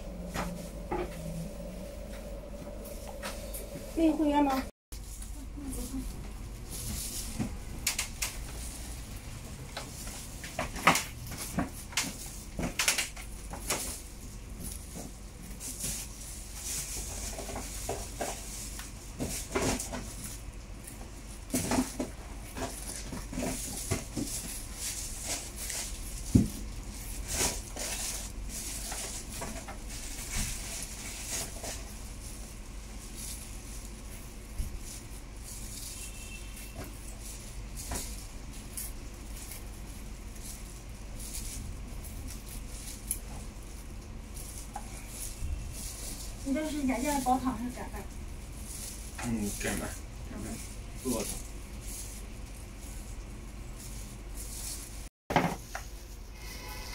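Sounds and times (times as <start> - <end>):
steady high hiss: 0.0 - 4.7.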